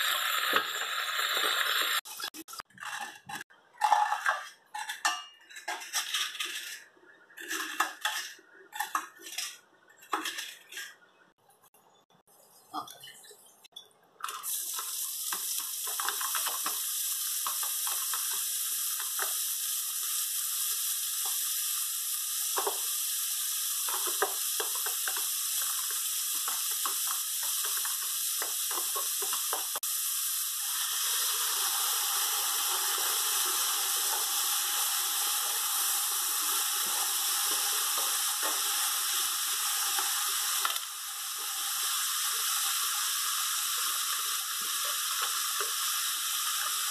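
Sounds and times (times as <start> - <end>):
hot oil sizzling in a pot: 0.0 - 6.8, 14.2 - 46.9
vegetables being stirred: 0.4 - 11.0, 14.2 - 19.4.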